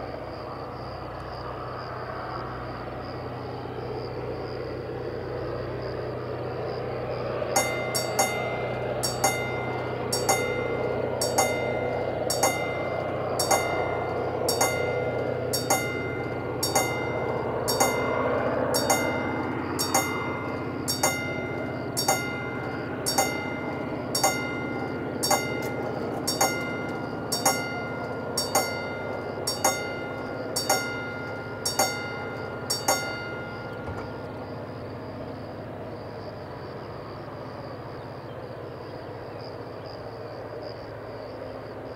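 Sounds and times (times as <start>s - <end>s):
level crossing warning bell: 7.4s - 35.8s.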